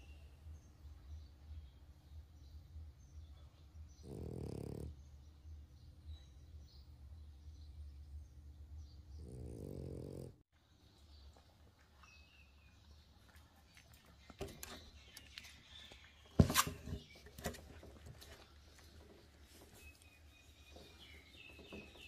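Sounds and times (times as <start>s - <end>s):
puppy vocalizing: 4.0s - 5.0s.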